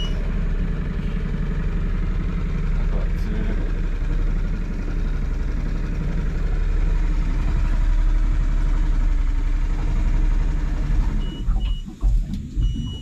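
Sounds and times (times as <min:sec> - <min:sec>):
boat engine droning: 0:00.0 - 0:13.0.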